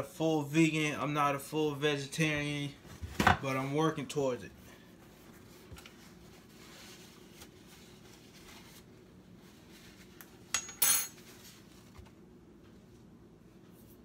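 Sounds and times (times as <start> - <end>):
faint steady background noise: 0.0 - 14.0.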